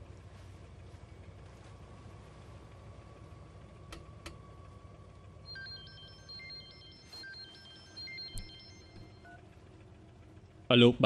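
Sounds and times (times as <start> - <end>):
electronic phone ringtone: 5.4 - 9.4.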